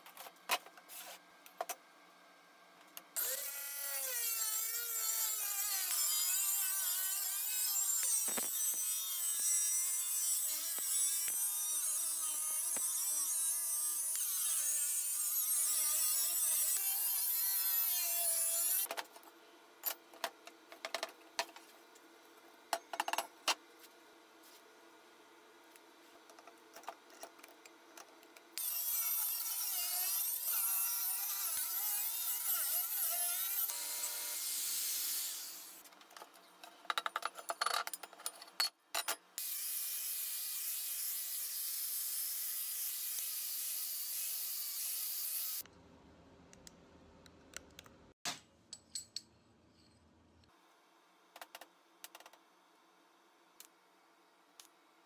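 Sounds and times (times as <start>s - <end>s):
angle grinder grinding steel: 3.2s - 18.9s, 28.6s - 35.8s, 39.4s - 45.6s
power tool cutting steel: 3.2s - 18.9s, 28.6s - 35.8s, 39.4s - 45.6s.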